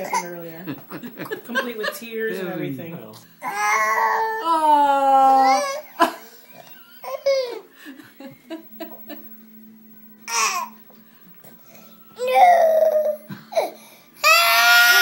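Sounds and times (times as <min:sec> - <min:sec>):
toddler whimpering: 0:03.4 - 0:05.9, 0:12.2 - 0:15.0
toddler whining cry: 0:03.4 - 0:06.0, 0:12.2 - 0:15.0.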